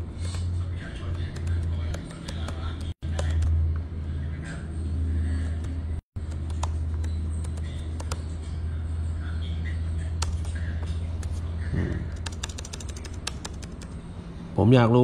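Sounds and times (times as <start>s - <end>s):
keyboard typing clicks: 1.1s - 3.5s, 5.4s - 8.2s, 10.2s - 10.6s, 12.1s - 14.0s
scattered clicks: 1.1s - 3.5s, 6.3s - 8.2s, 10.2s - 10.6s, 12.1s - 14.0s.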